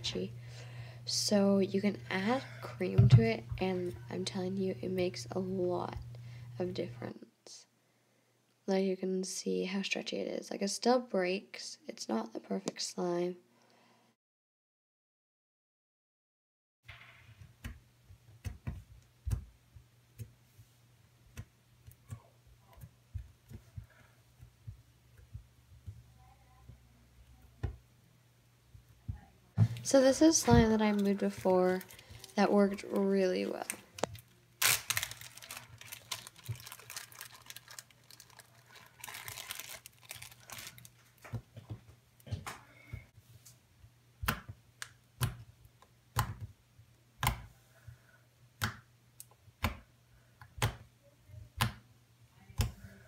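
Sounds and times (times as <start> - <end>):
low steady hum: 0.0 - 9.2, 17.3 - 53.0
plastic bag crinkling: 29.8 - 41.3
fingers poking slime: 46.1 - 46.6, 47.2 - 47.6.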